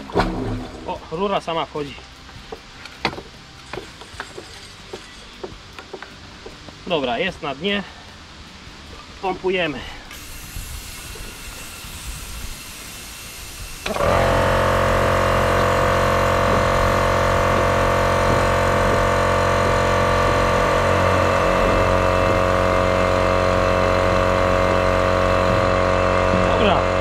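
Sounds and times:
air compressor motor humming: 9.8s - 27.0s.

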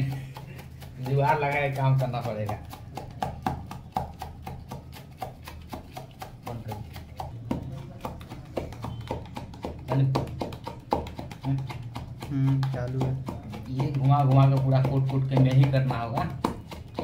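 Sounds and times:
rolling pin knocking in steel tumbler: 0.0s - 17.0s.

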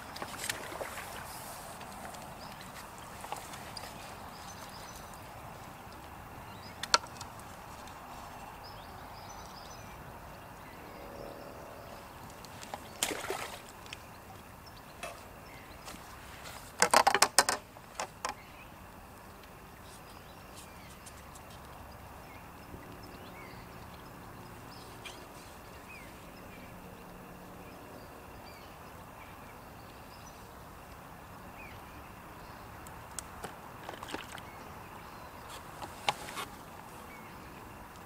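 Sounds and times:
outdoor background hiss: 0.0s - 38.0s
sharp clicks and knocks: 16.8s - 18.4s.

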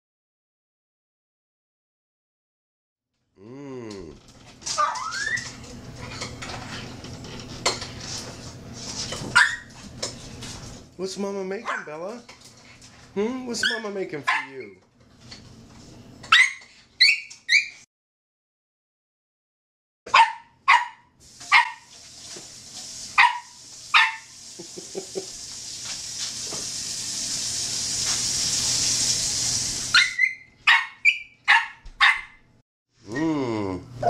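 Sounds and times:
small dog yipping and barking: 4.8s - 5.4s, 9.3s - 9.7s, 13.6s - 14.6s, 16.3s - 17.8s, 20.1s - 21.9s, 23.2s - 24.3s, 29.9s - 32.4s.

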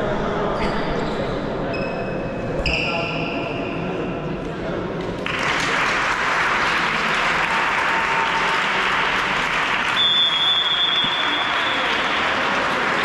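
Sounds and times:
audience applauding: 5.2s - 13.0s
referee's whistle blast: 10.0s - 11.8s.

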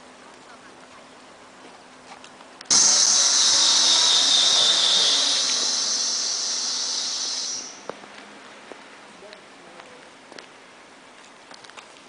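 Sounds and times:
high-pitched hiss: 2.7s - 8.0s.

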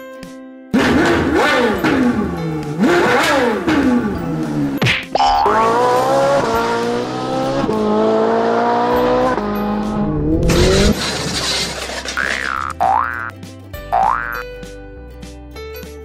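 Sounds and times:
race car engine revving: 0.8s - 12.6s
quick rising zip: 10.0s - 11.0s
toy cars crashing: 10.5s - 13.3s.

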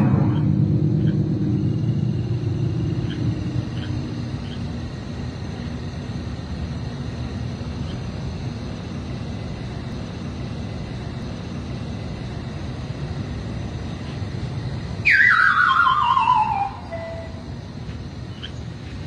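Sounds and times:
motorcycle engine running: 0.0s - 5.8s.

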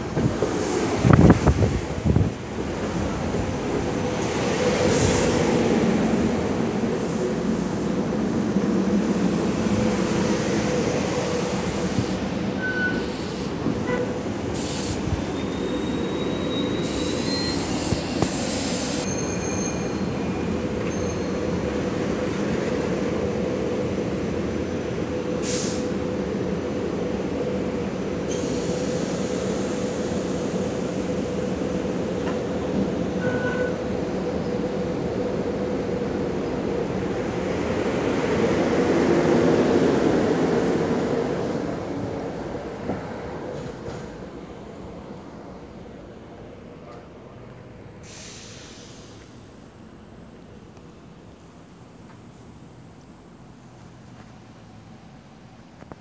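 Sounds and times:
electric train rolling and stopping: 0.0s - 56.0s
high brake squeal: 12.5s - 21.6s, 33.1s - 33.8s.

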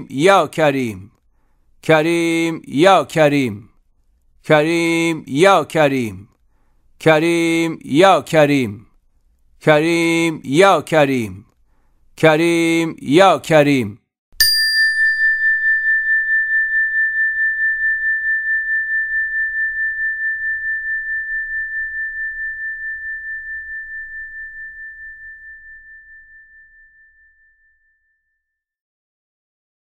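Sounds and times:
metallic chime ringing: 14.4s - 28.0s.

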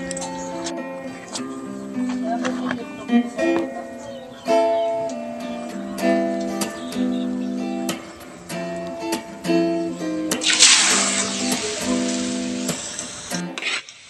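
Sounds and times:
acoustic guitar music: 0.0s - 14.0s
food sizzling in hot oil: 10.4s - 14.0s.

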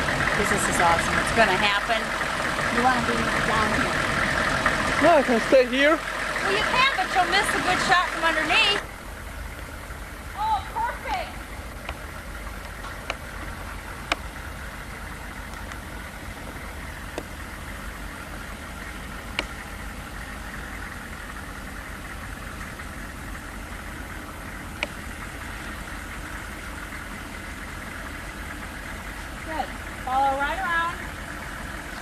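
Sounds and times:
diesel engine running at low revs: 0.0s - 32.0s
sharp clicks: 11.8s - 14.4s, 19.3s - 19.6s, 24.8s - 25.0s.

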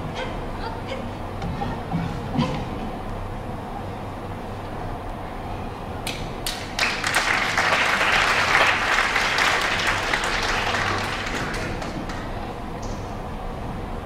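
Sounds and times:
audience applauding: 6.5s - 12.4s.

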